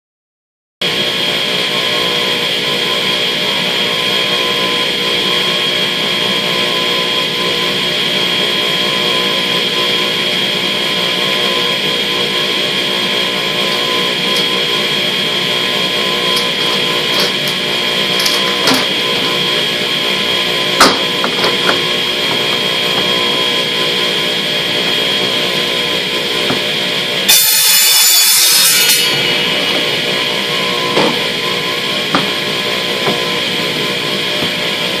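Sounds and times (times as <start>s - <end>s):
radial arm saw running: 1.3s - 35.0s
saw cutting plastic pipes: 12.0s - 35.0s.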